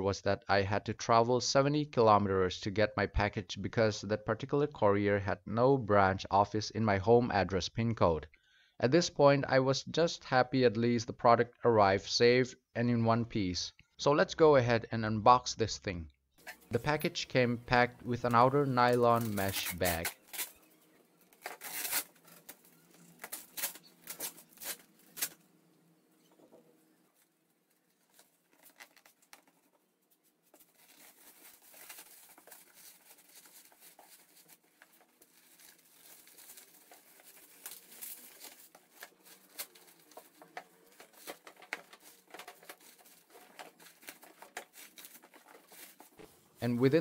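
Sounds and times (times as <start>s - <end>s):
plastic bag rustling: 16.4s - 25.6s, 26.2s - 47.0s.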